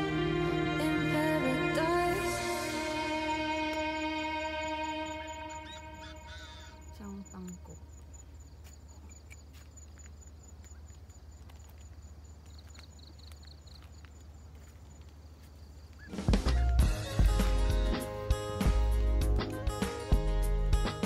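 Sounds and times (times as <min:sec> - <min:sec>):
insects chirping: 0:01.9 - 0:16.4.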